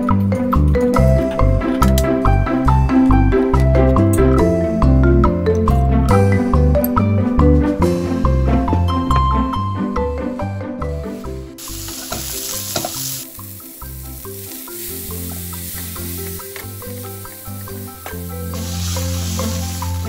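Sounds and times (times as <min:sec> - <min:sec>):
light background music: 0:00.0 - 0:20.0
beef sizzling in hot oil: 0:11.6 - 0:20.0.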